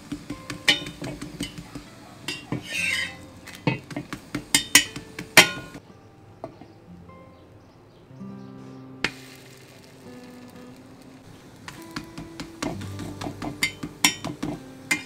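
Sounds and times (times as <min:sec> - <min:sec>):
faint background music: 0:00.0 - 0:15.0
spatula scraping on griddle: 0:00.5 - 0:05.8.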